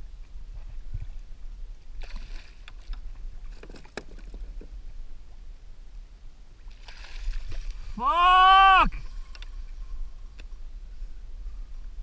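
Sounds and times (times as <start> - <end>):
water lapping against kayak hull: 1.8 - 4.8, 6.6 - 8.0.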